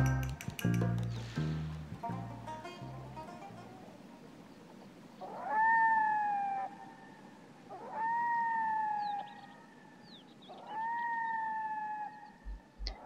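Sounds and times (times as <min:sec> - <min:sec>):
long drawn-out animal calls: 0:05.2 - 0:12.7.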